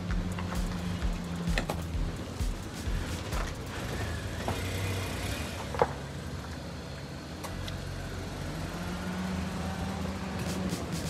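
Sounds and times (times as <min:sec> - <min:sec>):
car engine idling: 0:00.0 - 0:08.5.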